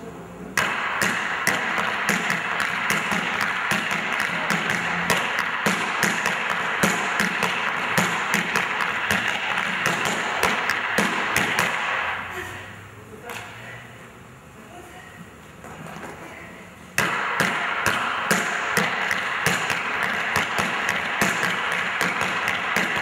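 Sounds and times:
tap dancing clicks on board: 0:17.0 - 0:23.0.

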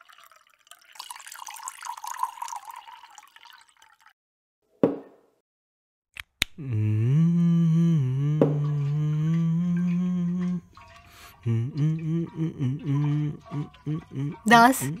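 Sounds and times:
man humming: 0:06.5 - 0:10.7, 0:11.3 - 0:15.0.

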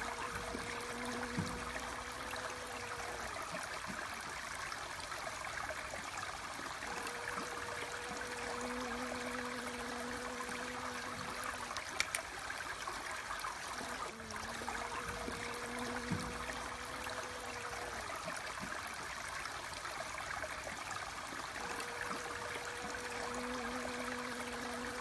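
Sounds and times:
honeybee humming: 0:00.0 - 0:03.7, 0:06.8 - 0:12.2, 0:13.7 - 0:18.4, 0:21.5 - 0:25.0
running water: 0:00.0 - 0:25.0
sharp click: 0:12.0 - 0:12.3.

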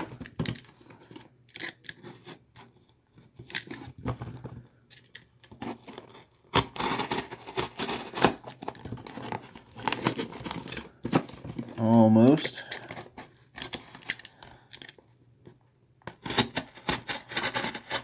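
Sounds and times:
knife cutting tape and cardboard: 0:05.6 - 0:08.4, 0:16.2 - 0:18.0.

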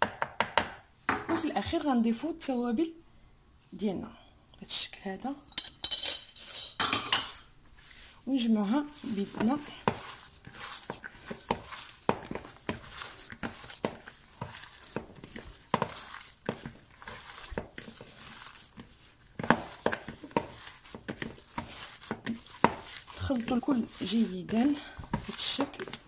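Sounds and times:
hand kneading meat in bowl: 0:08.2 - 0:26.0.

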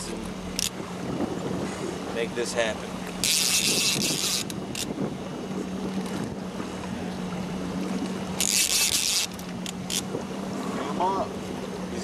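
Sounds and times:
boat motor humming: 0:00.0 - 0:12.0
fishing reel drag buzzing: 0:03.2 - 0:05.0, 0:08.4 - 0:10.1.

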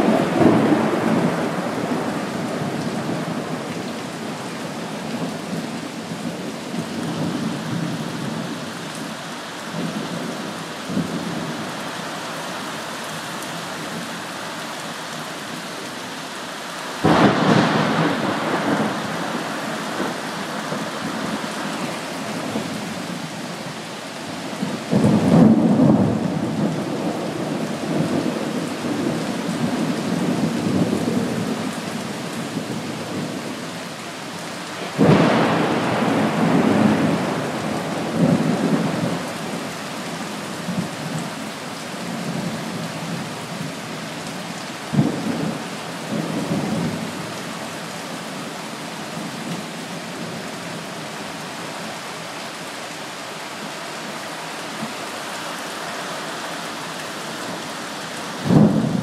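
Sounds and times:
thunder rumbling: 0:00.0 - 0:03.7, 0:17.0 - 0:22.7, 0:34.8 - 0:39.7, 0:58.4 - 0:59.0
steady rainfall: 0:00.0 - 0:59.0.

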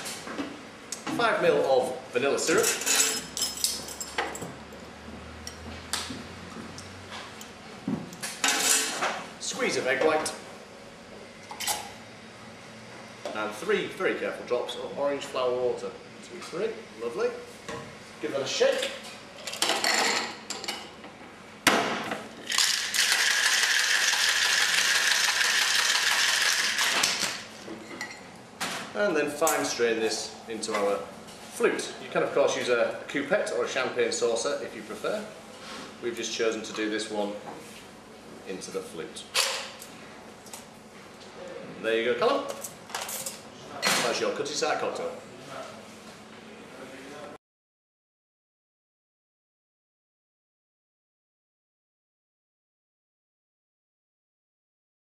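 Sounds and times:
ice rattling in shaker: 0:22.4 - 0:27.4.

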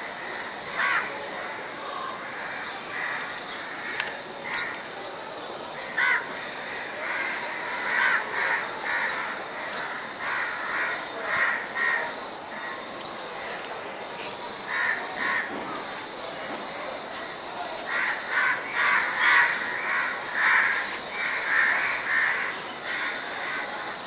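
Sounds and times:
steady background hiss: 0:00.0 - 0:24.0
crows cawing: 0:00.2 - 0:01.6, 0:02.2 - 0:04.8, 0:05.8 - 0:12.8, 0:14.7 - 0:15.5, 0:17.9 - 0:23.8.

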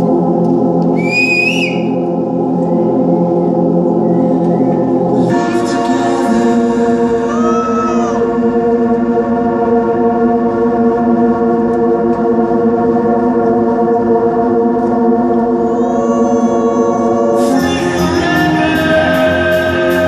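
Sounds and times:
organ-like keyboard chords: 0:00.0 - 0:20.0
high gliding tones: 0:14.1 - 0:20.0.

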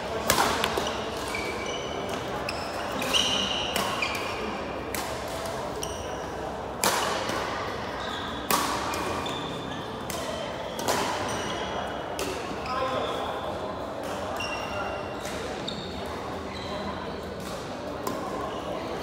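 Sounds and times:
rackets striking shuttlecock: 0:00.2 - 0:05.8, 0:06.7 - 0:07.5, 0:08.4 - 0:09.3, 0:10.0 - 0:11.3
shoes squeaking on floor: 0:00.6 - 0:04.5, 0:05.7 - 0:06.4, 0:08.0 - 0:08.5, 0:09.1 - 0:10.0, 0:14.4 - 0:17.2.

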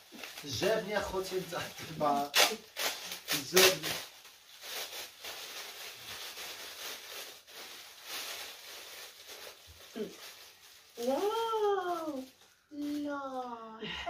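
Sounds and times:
wrapping paper crinkling and tearing: 0:00.0 - 0:13.6.

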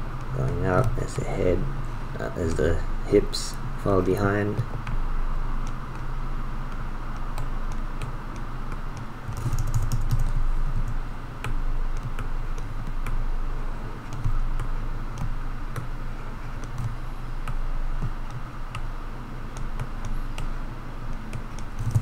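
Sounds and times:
low electrical hum: 0:00.0 - 0:22.0
computer keys clicking: 0:06.7 - 0:13.2, 0:14.1 - 0:15.9, 0:21.1 - 0:22.0.

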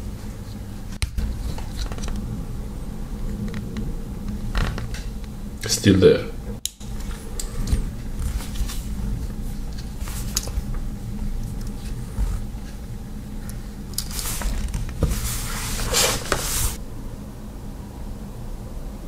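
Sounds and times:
rustling and scraping: 0:00.0 - 0:02.4, 0:06.8 - 0:16.8.

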